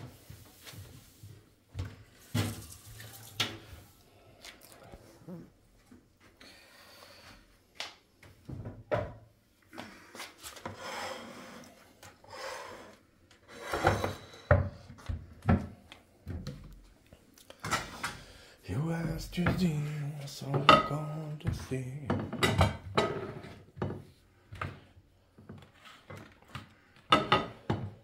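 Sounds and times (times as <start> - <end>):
plates scraping on countertop: 13.5 - 14.6, 22.3 - 24.0
ceramic plates knocking: 20.5 - 21.0.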